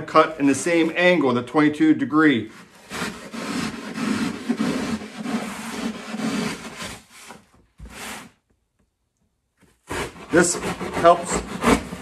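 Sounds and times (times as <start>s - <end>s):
knife cutting duct board: 2.6s - 8.3s, 9.7s - 12.0s.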